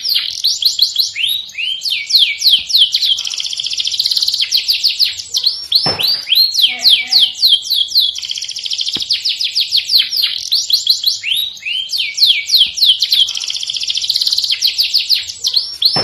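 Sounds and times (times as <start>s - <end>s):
canary singing: 0.0s - 16.0s.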